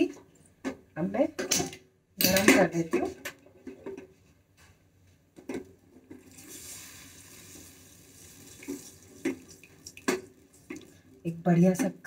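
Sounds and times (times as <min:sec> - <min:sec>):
sauce sizzling in saucepan: 0:06.2 - 0:11.2.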